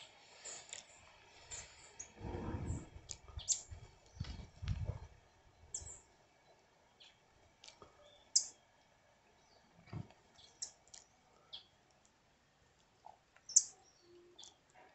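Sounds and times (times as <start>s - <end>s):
birds giving high chirps: 0.8s - 4.5s, 5.3s - 6.1s, 8.0s - 8.7s, 10.4s - 11.8s, 13.4s - 14.6s
low rumble: 2.2s - 3.4s.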